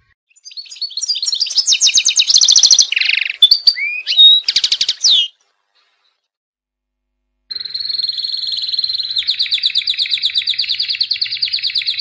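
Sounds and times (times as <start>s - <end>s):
canary singing trills: 0.0s - 6.1s, 7.5s - 12.0s.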